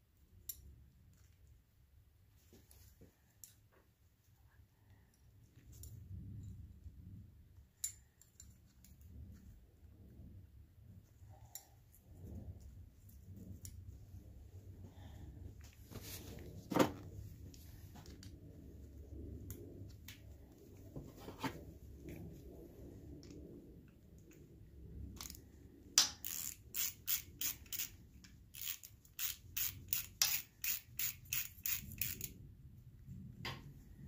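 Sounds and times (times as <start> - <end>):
handling and rubbing sounds: 0.2 - 29.9
ratchet wrench clicking: 26.0 - 32.4.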